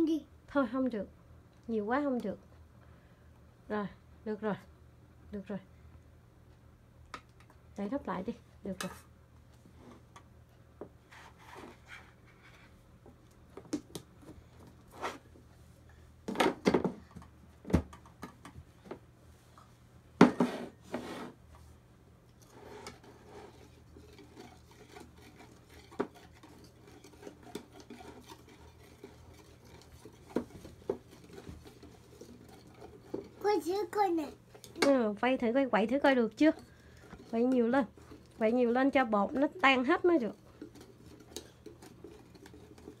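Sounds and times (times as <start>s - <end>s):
whisk stirring in batter: 22.4s - 34.8s, 36.1s - 43.0s.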